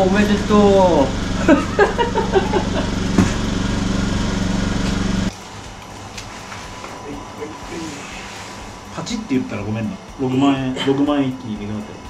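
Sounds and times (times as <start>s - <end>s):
small engine running: 0.0s - 5.3s.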